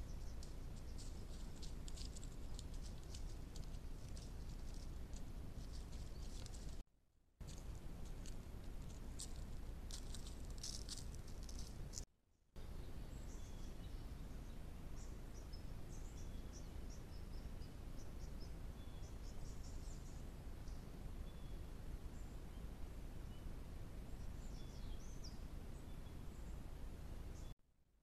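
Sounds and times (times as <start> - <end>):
low hiss and rumble: 7.4 - 12.0, 12.6 - 27.5
bird and insect chirps: 12.6 - 26.7.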